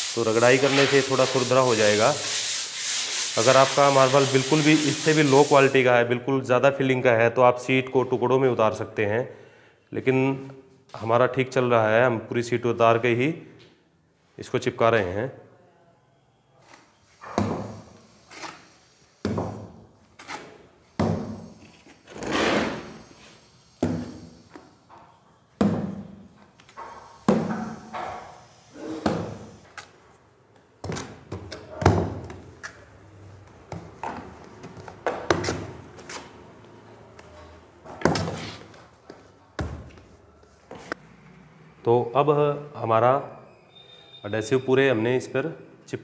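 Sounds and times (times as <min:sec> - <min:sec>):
trowel knocking and slapping adhesive: 0:25.6 - 0:26.1.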